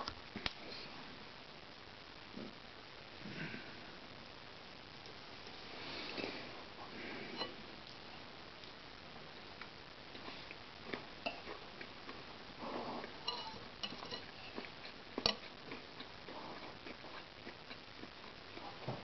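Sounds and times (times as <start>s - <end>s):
cutlery clinking on ceramic bowl: 13.2s - 14.3s.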